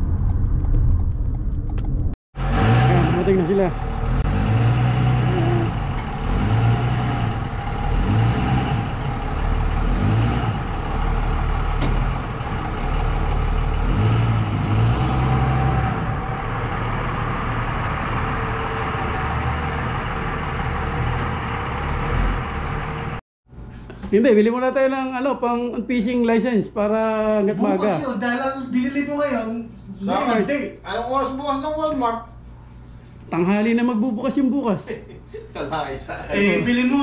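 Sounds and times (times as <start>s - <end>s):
truck engine rumbling: 0.0s - 23.6s.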